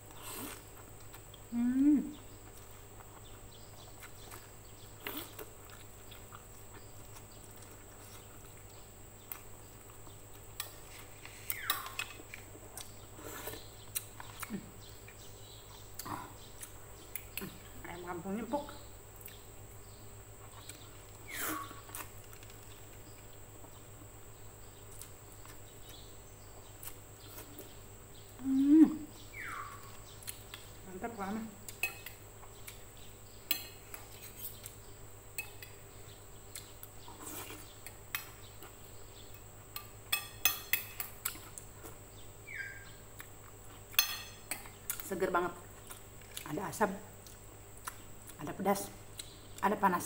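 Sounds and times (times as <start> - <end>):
cutlery clinking on a plate: 39.8 - 41.1, 44.0 - 44.4.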